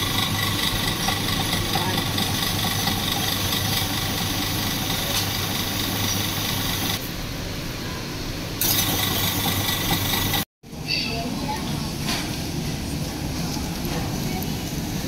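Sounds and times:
ice-shaving machine grinding: 0:00.0 - 0:07.0, 0:08.6 - 0:10.5.

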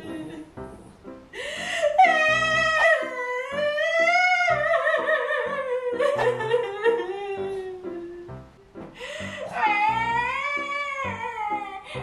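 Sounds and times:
background music with steady beat: 0:00.0 - 0:12.0
woman wailing fake cry: 0:01.8 - 0:08.1, 0:09.2 - 0:12.0.

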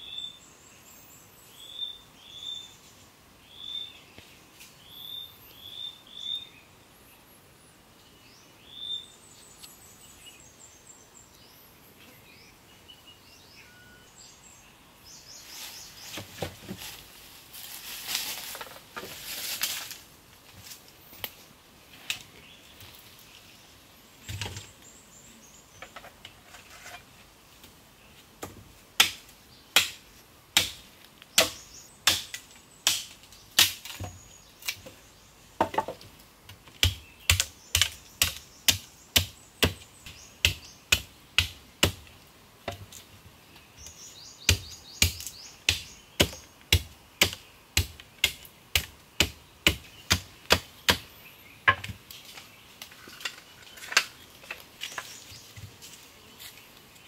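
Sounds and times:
faint bird chirps: 0:00.0 - 0:02.9, 0:03.5 - 0:04.2, 0:04.8 - 0:16.2
machete chopping wood: 0:28.4 - 0:29.2, 0:29.8 - 0:30.0, 0:30.6 - 0:30.8, 0:31.4 - 0:34.2, 0:36.8 - 0:39.8, 0:40.4 - 0:42.1, 0:44.5 - 0:51.0.

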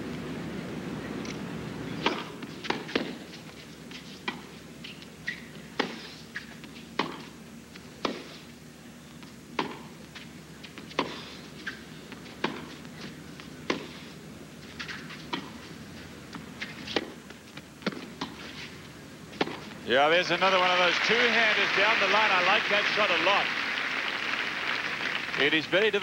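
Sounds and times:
rackets striking tennis ball: 0:02.0 - 0:03.3, 0:05.3 - 0:07.3, 0:08.0 - 0:08.4, 0:09.5 - 0:14.0, 0:14.8 - 0:15.6, 0:16.4 - 0:19.8
tennis ball bouncing: 0:02.0 - 0:03.3, 0:04.0 - 0:04.5, 0:05.3 - 0:07.4, 0:08.0 - 0:08.4, 0:09.2 - 0:14.0, 0:14.7 - 0:15.7, 0:16.3 - 0:18.6, 0:19.3 - 0:19.8.

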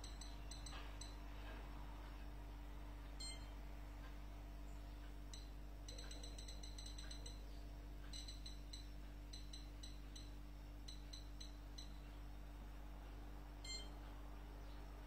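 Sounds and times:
oven control panel beeps: 0:00.0 - 0:01.2, 0:03.2 - 0:03.6, 0:05.3 - 0:12.1, 0:13.6 - 0:14.0
faint steady hum: 0:00.0 - 0:15.0.

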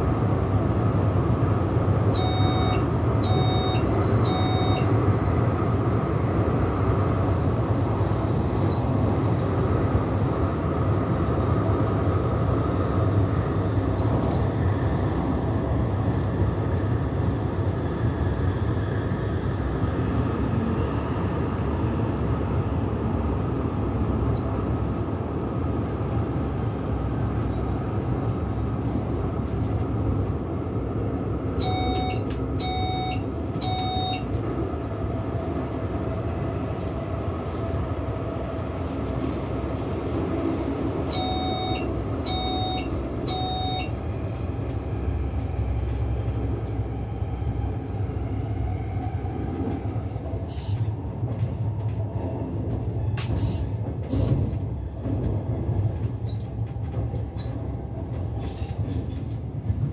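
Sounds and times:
train rumbling in tunnel: 0:00.0 - 0:59.9
short cab beeps: 0:02.1 - 0:04.9, 0:31.6 - 0:34.3, 0:41.1 - 0:43.9.

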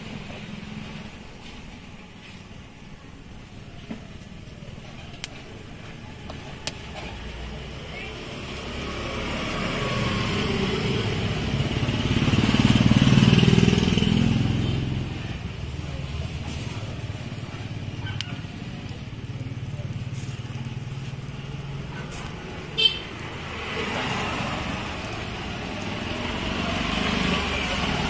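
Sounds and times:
motorcycle passing close by: 0:08.2 - 0:15.7, 0:17.0 - 0:28.0.

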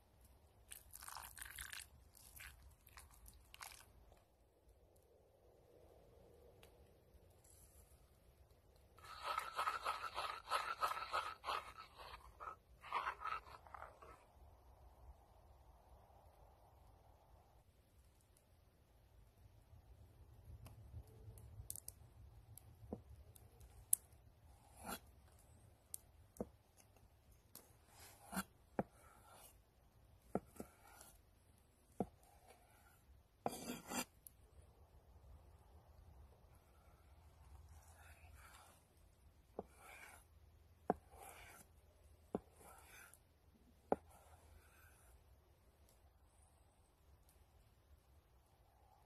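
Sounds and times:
spoon scraping in small pan: 0:09.0 - 0:14.3.

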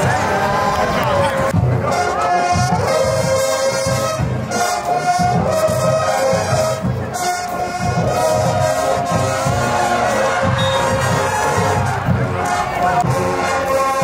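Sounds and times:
brass music: 0:00.0 - 0:14.0
pulsing drumbeat: 0:05.2 - 0:14.0.

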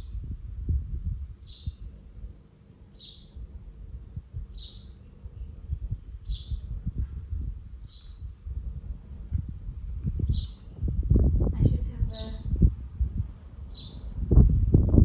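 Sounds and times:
bird chirping: 0:01.4 - 0:02.0, 0:02.9 - 0:03.5, 0:04.4 - 0:06.8, 0:07.8 - 0:08.3, 0:10.2 - 0:10.8, 0:13.7 - 0:14.2
low knocks and rumble: 0:08.4 - 0:11.6.

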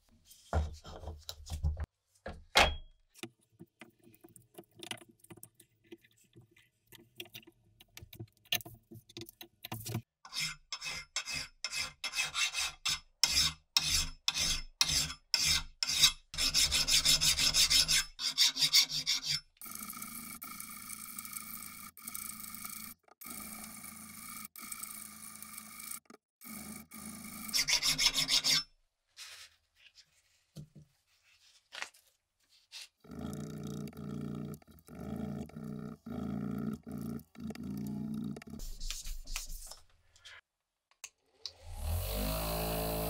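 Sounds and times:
hand file rasping on steel: 0:10.3 - 0:19.5, 0:27.5 - 0:28.7.

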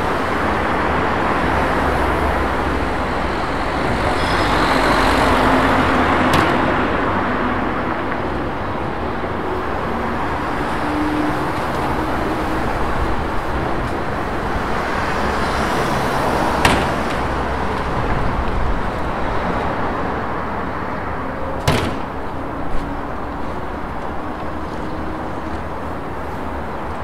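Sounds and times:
road traffic: 0:00.0 - 0:27.0
sharp knocks: 0:16.6 - 0:17.3, 0:21.6 - 0:22.2.

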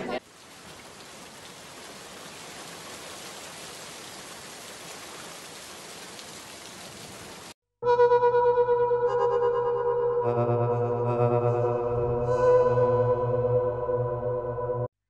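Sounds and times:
steady rainfall: 0:00.0 - 0:07.6.

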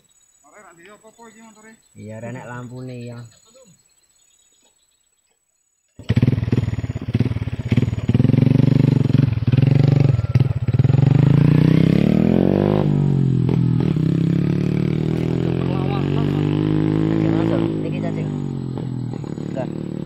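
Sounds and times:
motorcycle engine revving: 0:06.0 - 0:20.0.

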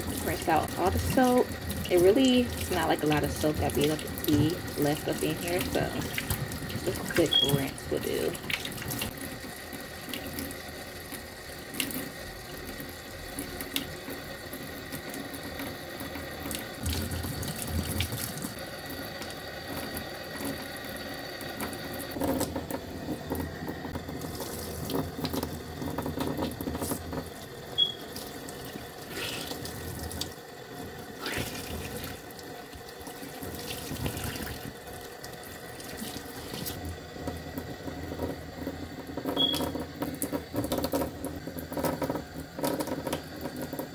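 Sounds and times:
tap water running into sink: 0:00.0 - 0:43.9.

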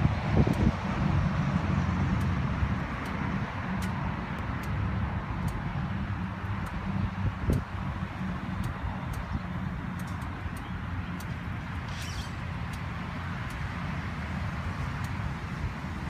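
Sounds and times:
rustle: 0:09.4 - 0:13.9.

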